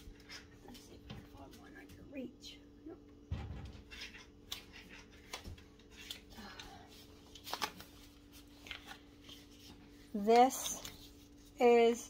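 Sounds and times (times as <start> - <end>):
steady low hum: 0.0 - 12.0
plastic pouch rustling and clicks: 7.2 - 9.6.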